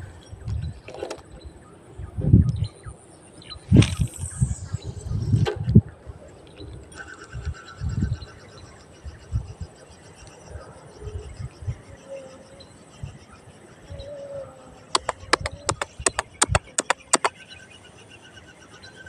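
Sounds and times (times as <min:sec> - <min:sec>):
sharp clicks: 0:14.9 - 0:17.3.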